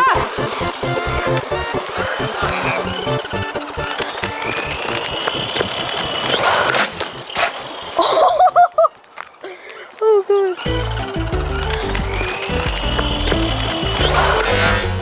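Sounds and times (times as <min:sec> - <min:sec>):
person exclaiming: 0:00.0 - 0:00.4
electric motor whining: 0:00.0 - 0:08.0, 0:10.6 - 0:15.0.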